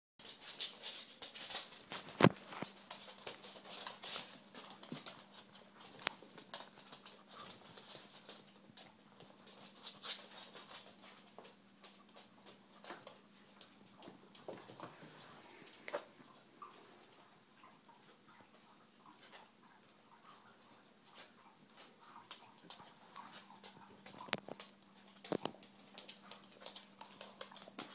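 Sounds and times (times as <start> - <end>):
puppy pad rustling: 0.2 - 17.0
puppy claws clicking on floor: 0.2 - 17.3, 21.1 - 27.9.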